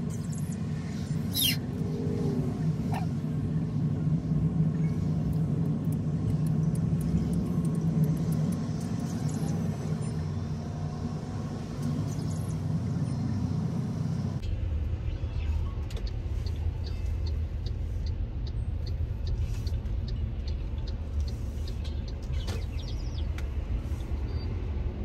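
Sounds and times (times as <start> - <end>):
car engine and road rumble: 0.0 - 25.0
light ticks: 5.3 - 9.0.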